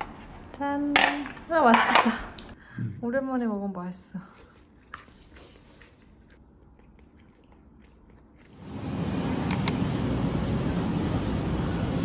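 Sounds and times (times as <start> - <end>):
supermarket ambience hum and hiss: 8.6 - 12.0.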